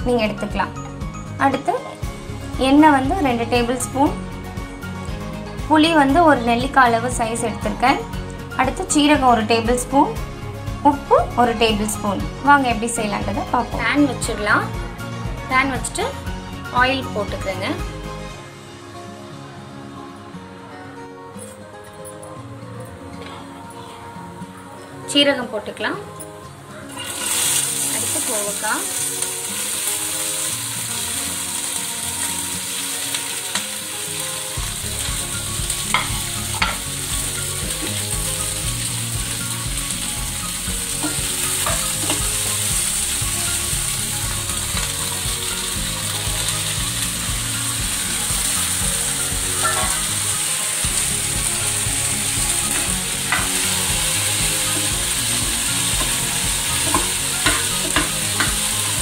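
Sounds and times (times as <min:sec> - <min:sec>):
vegetables sizzling in oil: 0:26.9 - 0:59.0.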